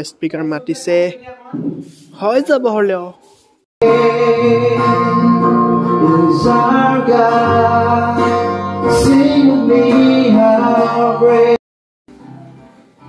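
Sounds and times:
acoustic guitar: 3.3 - 13.0
man singing into a microphone: 3.8 - 11.6.

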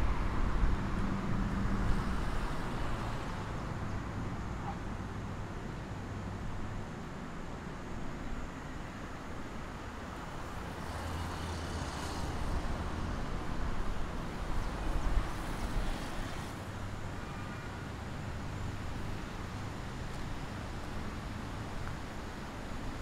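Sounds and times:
steady traffic noise: 0.0 - 23.0
passing vehicle engine hum: 8.4 - 23.0.

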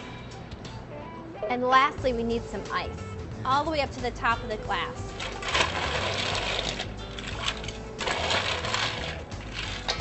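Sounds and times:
ice cubes clattering into glass: 5.4 - 10.0.

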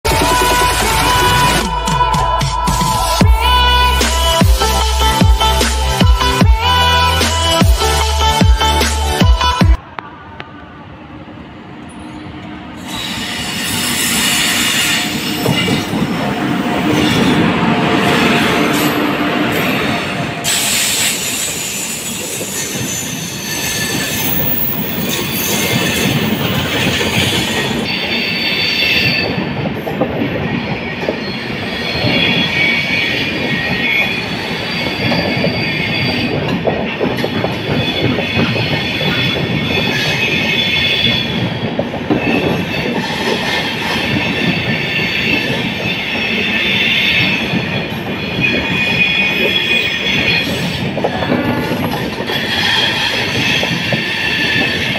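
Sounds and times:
train wheels squealing: 11.9 - 17.5, 18.1 - 29.5, 30.6 - 54.9
wheels clattering on rail joints: 20.4 - 54.9.

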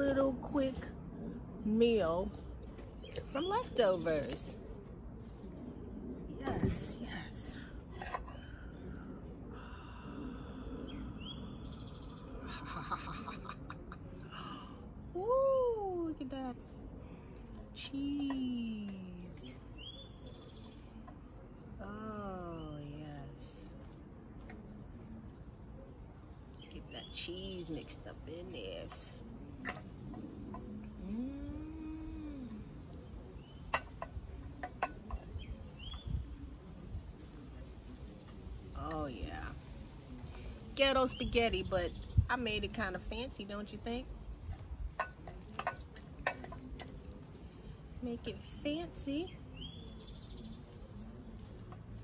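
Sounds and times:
birds chirping: 0.0 - 52.0
low outdoor background hum: 0.0 - 52.0
person humming: 31.0 - 32.7.

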